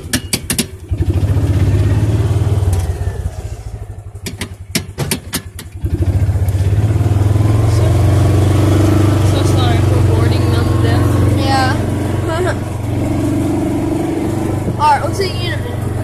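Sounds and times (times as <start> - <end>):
utility vehicle engine running: 0.0 - 16.0
sharp clacks: 4.2 - 5.8.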